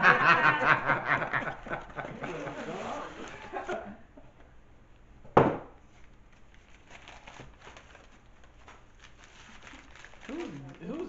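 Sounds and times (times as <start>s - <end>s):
gift wrapping paper crinkling and tearing: 1.9s - 3.8s, 6.0s - 11.0s.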